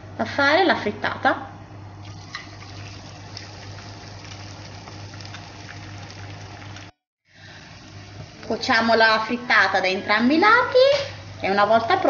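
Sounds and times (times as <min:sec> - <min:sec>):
food sizzling in hot oil: 0:02.0 - 0:07.0.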